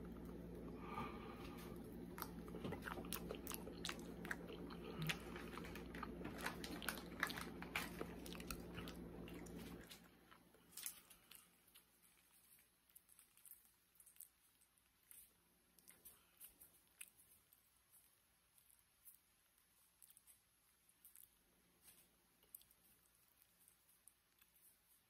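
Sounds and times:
low room hum: 0.0 - 25.0
person chewing: 0.0 - 25.0.

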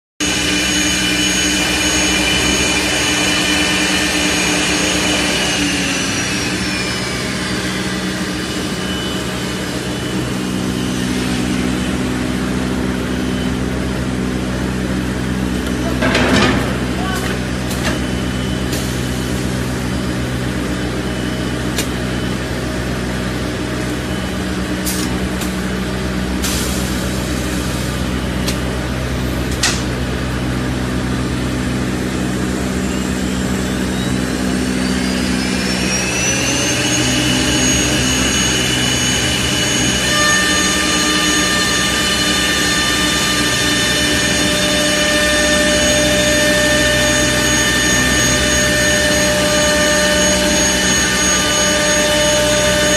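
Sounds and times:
lathe motor humming: 0.2 - 15.8, 30.2 - 52.9
motor whine spinning up: 0.2 - 52.9.

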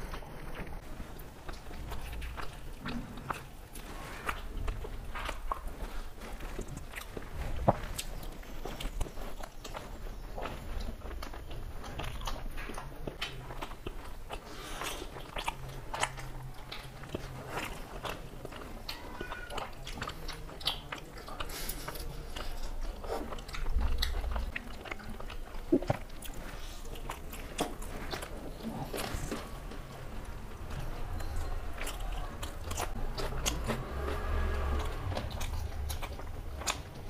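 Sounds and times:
wet chewing: 0.0 - 37.0
lip smacks: 31.8 - 37.0.

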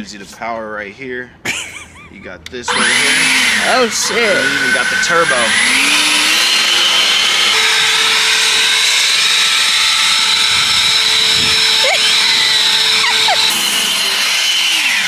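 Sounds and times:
leaf blower running: 2.7 - 15.0.

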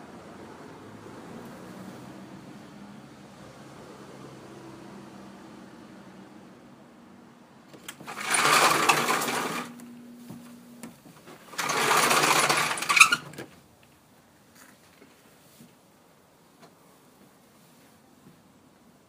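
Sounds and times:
sliding door rolling on track: 7.7 - 9.8, 11.4 - 13.5.

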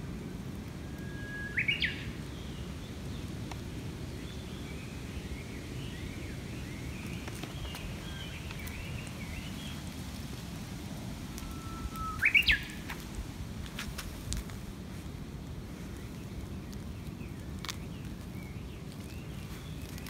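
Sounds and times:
low background noise: 0.0 - 20.0
faint bird twittering: 0.9 - 2.7, 11.3 - 12.9
bush warbler singing: 1.0 - 3.4, 4.0 - 9.9, 11.4 - 13.0.

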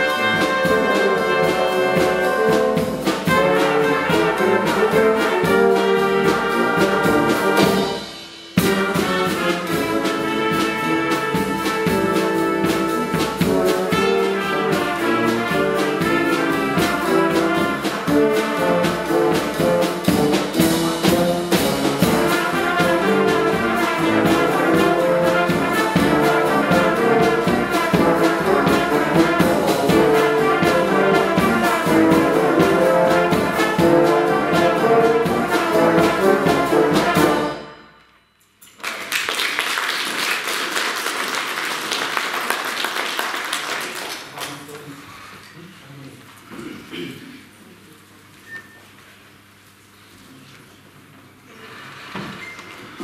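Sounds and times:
brass band music: 0.0 - 38.3.

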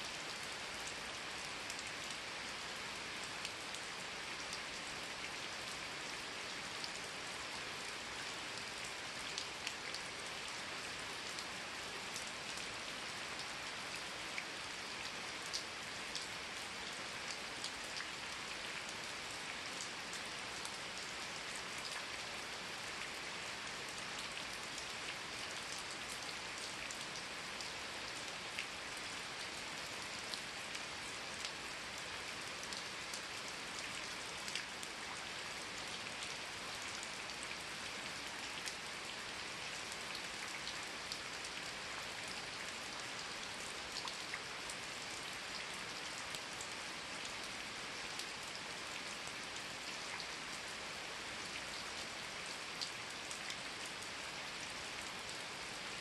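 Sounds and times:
rain on foliage: 0.0 - 56.0.

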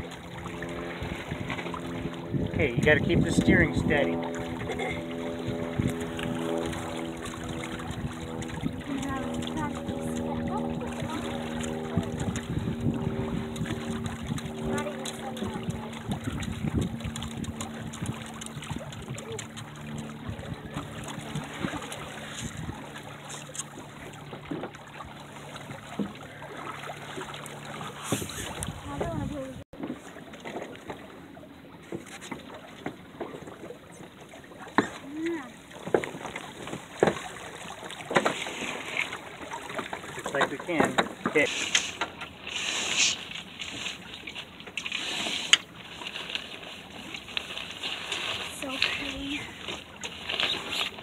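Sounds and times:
water washing along boat hull: 0.0 - 51.0
sailcloth rustling: 41.3 - 51.0.

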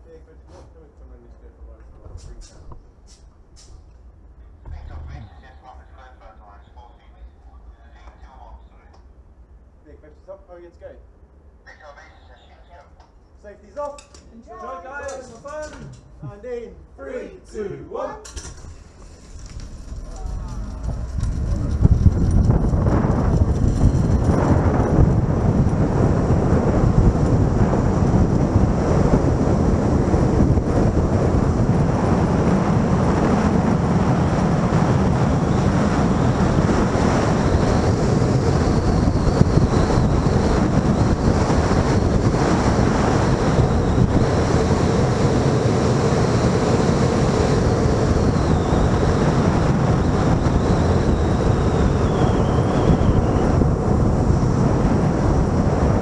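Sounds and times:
wind buffeting microphone: 1.9 - 6.4, 18.4 - 56.0
faint high whine: 34.6 - 54.6.

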